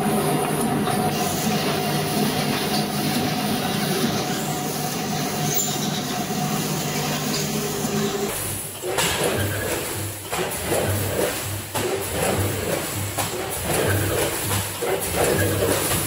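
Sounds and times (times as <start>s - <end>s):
machine humming: 0.0s - 8.7s.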